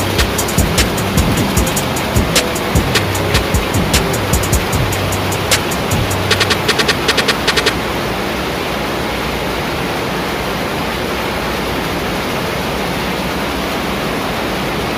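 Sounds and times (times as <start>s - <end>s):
looms running: 0.0s - 7.8s.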